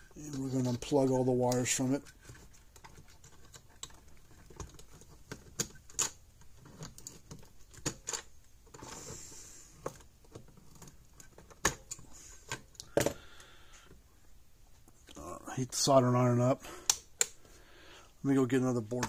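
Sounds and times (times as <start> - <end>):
pliers clicking and snapping: 16.8 - 17.4.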